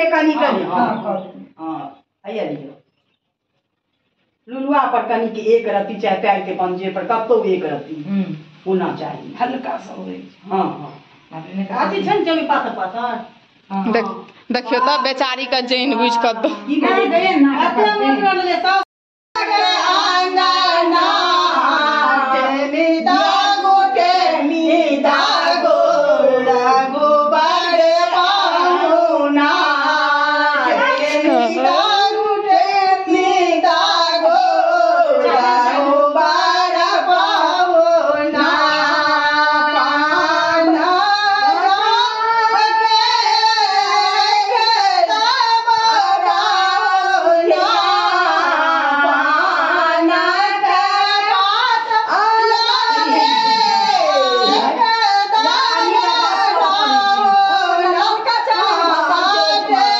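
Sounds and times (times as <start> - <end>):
women singing together: 15.8 - 18.8, 19.4 - 59.9.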